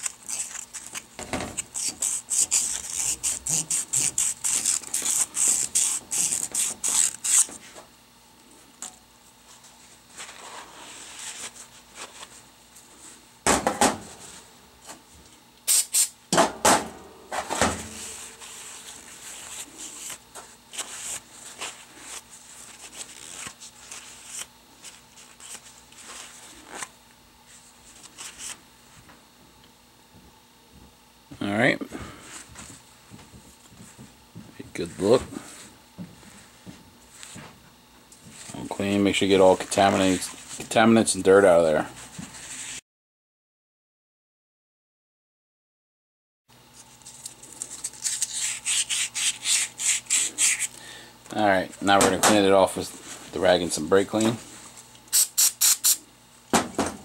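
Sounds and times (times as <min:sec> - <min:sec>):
emery cloth rasping on metal: 0:01.7 - 0:07.5.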